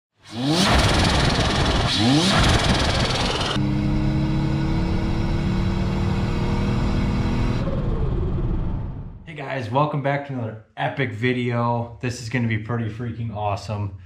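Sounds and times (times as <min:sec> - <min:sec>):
engine revving with rushing sound: 0:00.2 - 0:09.3
engine running inside cab: 0:00.3 - 0:09.1.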